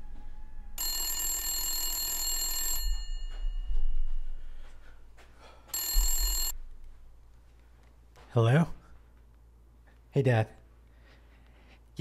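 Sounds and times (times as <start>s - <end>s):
telephone ringing: 0.8s - 4.2s, 5.7s - 6.5s.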